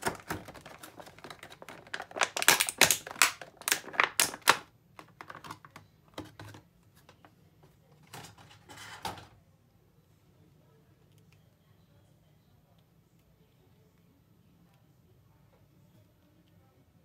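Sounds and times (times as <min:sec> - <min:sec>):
plastic packaging crackling: 0:00.0 - 0:05.8.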